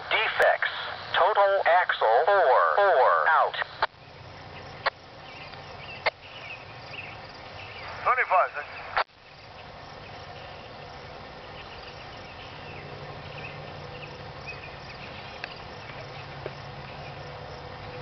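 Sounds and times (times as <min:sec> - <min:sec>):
insects humming: 0:02.5 - 0:18.0
bird chirps: 0:04.0 - 0:08.0.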